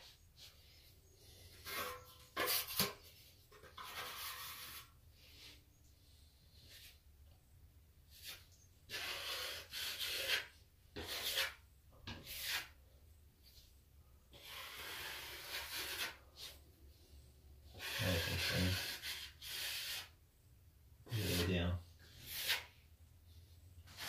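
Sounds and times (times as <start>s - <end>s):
plastering knife scraping compound: 0.0s - 7.0s, 8.1s - 13.7s, 14.3s - 20.2s, 21.0s - 24.0s.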